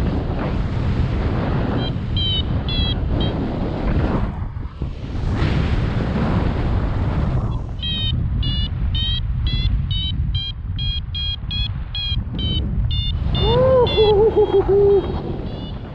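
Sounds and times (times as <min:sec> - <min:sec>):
wind rumble on microphone: 0:00.0 - 0:15.9
rapid high electronic beeps: 0:07.8 - 0:14.1
low wavering hooting tone: 0:11.6 - 0:15.8.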